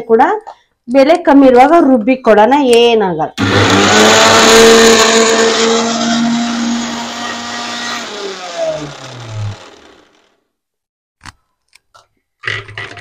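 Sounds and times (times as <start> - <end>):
mixer grinder motor: 3.4 - 10.4.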